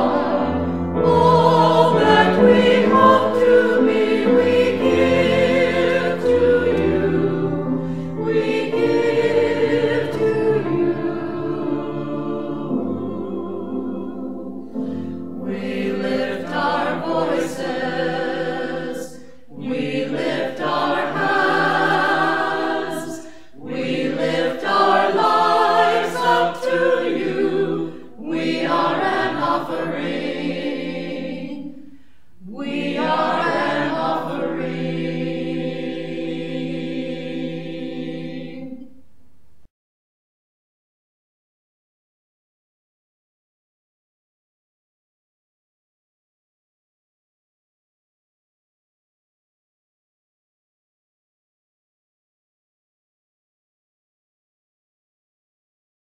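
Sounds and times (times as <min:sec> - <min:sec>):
choir singing: 0:00.0 - 0:39.0.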